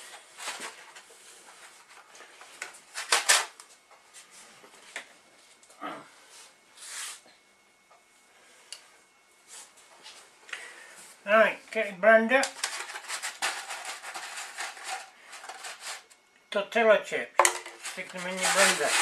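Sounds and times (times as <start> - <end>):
foil tray rustling: 12.4 - 16.2, 17.6 - 19.0.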